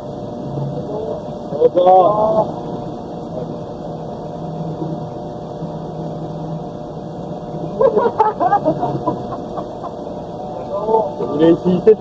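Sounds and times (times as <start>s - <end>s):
steady hum with held tones: 0.0s - 12.0s
person speaking: 10.4s - 12.0s.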